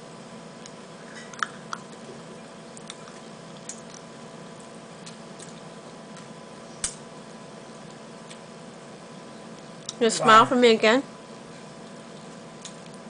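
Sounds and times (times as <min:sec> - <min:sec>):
faint electrical hum: 0:00.0 - 0:13.0.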